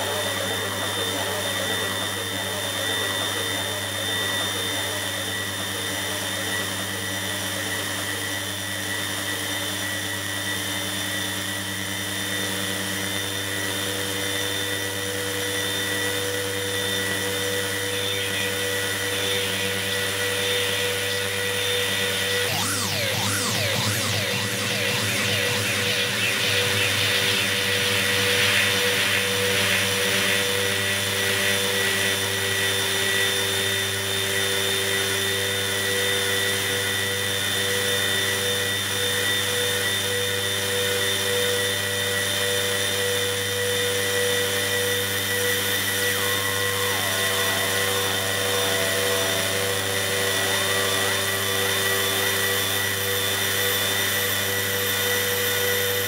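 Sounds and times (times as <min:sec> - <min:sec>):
electronic drone of hum tones: 0:00.0 - 0:38.2, 0:39.7 - 0:56.0
short sliding electronic tones: 0:22.1 - 0:28.3.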